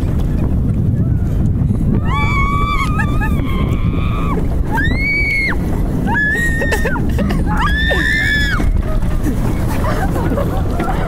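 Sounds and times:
roller coaster rumbling on track: 0.0s - 11.0s
riders screaming: 2.0s - 8.9s.

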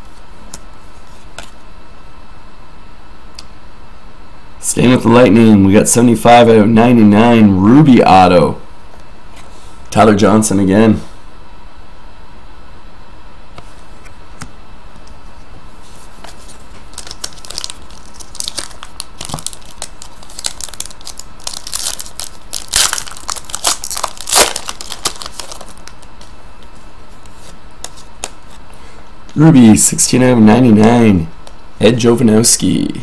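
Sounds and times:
wrapper tearing and crinkling: 16.8s - 26.1s.

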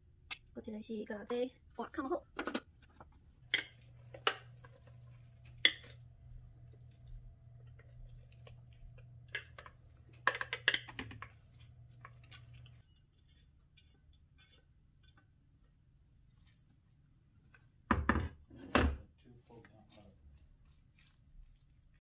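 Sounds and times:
spatula scraping a metal bowl: 9.3s - 15.3s.

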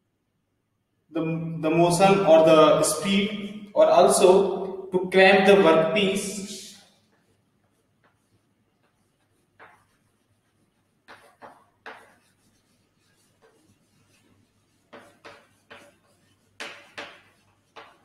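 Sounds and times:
chalk writing on a chalkboard: 5.4s - 18.0s.

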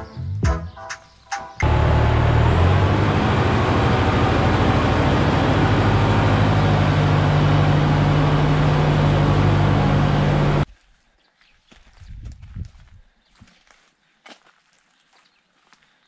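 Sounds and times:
tractor diesel engine running: 1.6s - 10.6s.

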